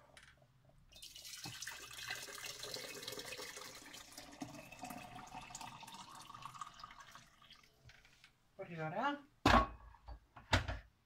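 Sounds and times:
water pouring into glass jug: 0:00.9 - 0:07.8.

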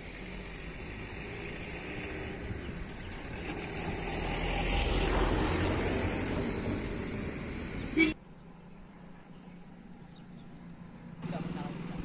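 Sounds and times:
vehicle passing by: 0:00.0 - 0:08.0.

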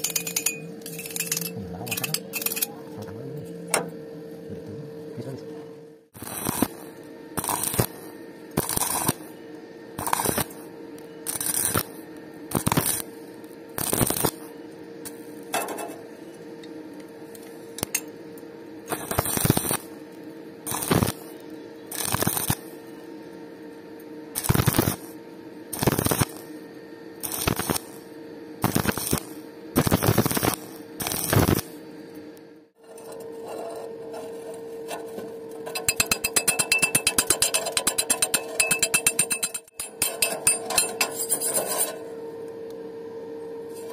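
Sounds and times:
steady hum: 0:00.0 - 0:43.9
welding arc crackling: 0:06.2 - 0:09.3, 0:10.0 - 0:16.1, 0:18.8 - 0:22.9, 0:24.3 - 0:26.6, 0:27.2 - 0:31.8.

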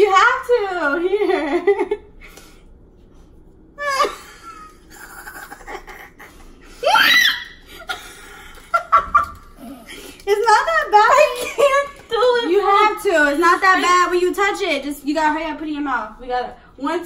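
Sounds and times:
person laughing nervously: 0:03.8 - 0:06.6
person squealing: 0:06.8 - 0:07.7.

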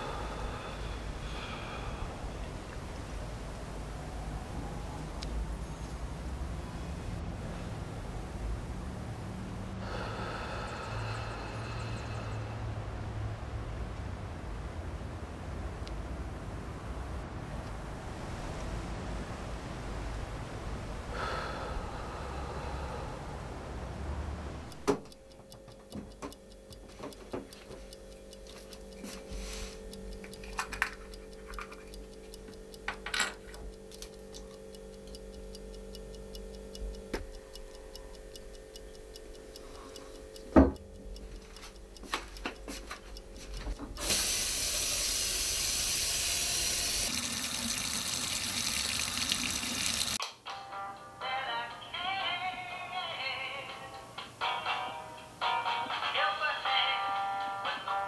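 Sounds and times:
steady low hum: 0:00.0 - 0:47.2
small clicks and knocks: 0:24.9 - 0:29.4, 0:30.2 - 0:34.6
water running from tap: 0:44.0 - 0:50.2.

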